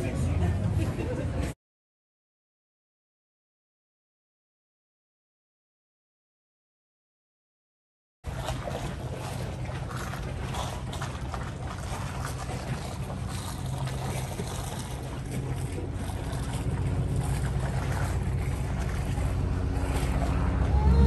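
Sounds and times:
boat engine running: 0.0 - 1.6, 8.2 - 21.0.

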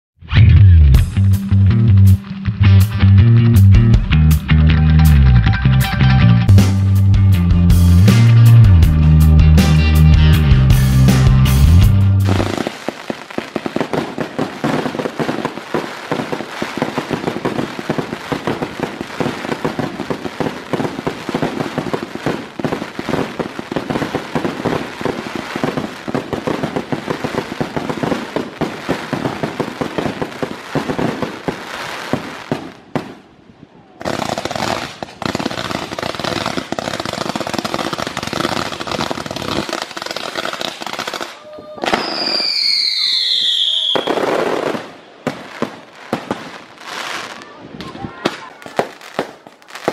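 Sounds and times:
fireworks crackling: 11.0 - 49.9.

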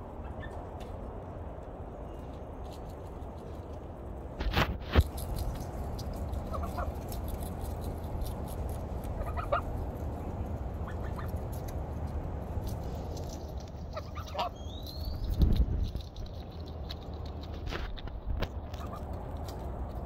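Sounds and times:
steady low rumble: 0.0 - 20.0
goose calling softly: 9.2 - 9.7, 10.8 - 11.3, 13.9 - 14.6.

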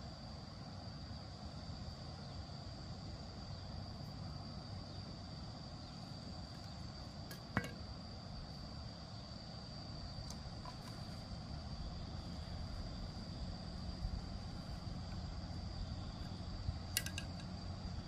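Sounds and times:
low background rumble: 0.0 - 18.0
sharp click: 16.9 - 17.5.

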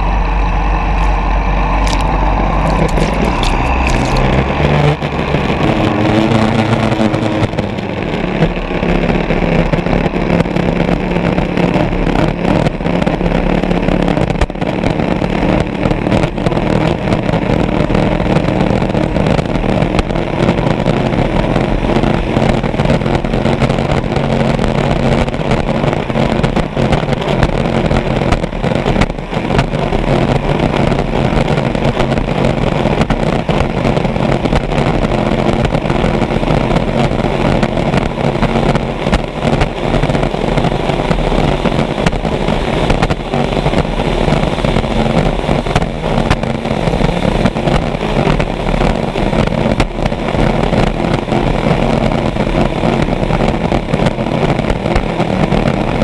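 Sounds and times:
boat engine running hard: 0.0 - 56.0
water rushing under hull: 0.0 - 56.0
wind rushing: 0.0 - 56.0.

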